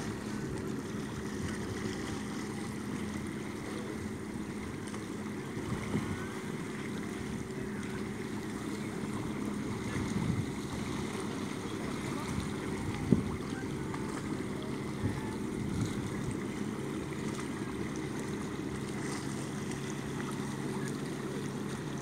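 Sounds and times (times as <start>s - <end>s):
small waves lapping: 0.0s - 22.0s
wind buffeting microphone: 8.9s - 16.5s.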